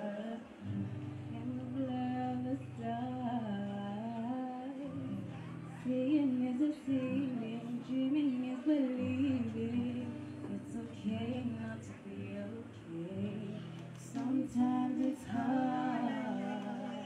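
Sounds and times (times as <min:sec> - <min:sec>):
acoustic guitar chords: 0:00.0 - 0:17.0
woman singing: 0:00.0 - 0:17.0.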